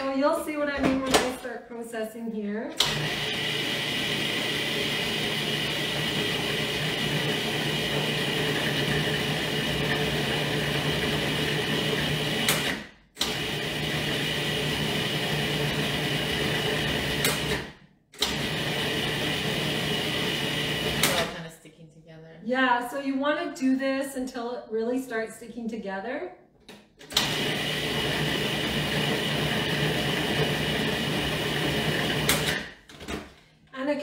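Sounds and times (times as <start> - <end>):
food processor motor running: 2.8 - 21.3, 27.1 - 32.8.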